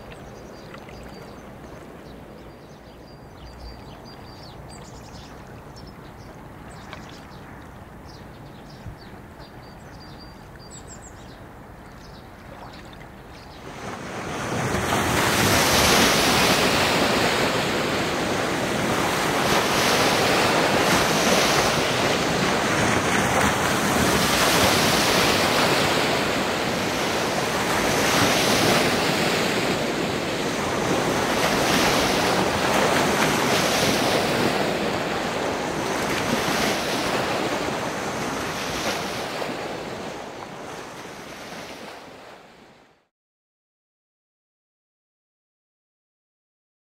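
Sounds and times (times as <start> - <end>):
waves washing onto bank: 12.4 - 42.6.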